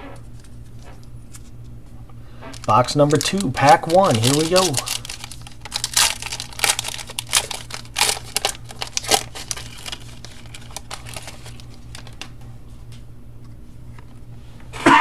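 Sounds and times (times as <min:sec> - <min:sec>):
cards rustling: 0:00.3 - 0:01.7, 0:02.3 - 0:12.4
foil wrapper tearing and crinkling: 0:02.5 - 0:12.3.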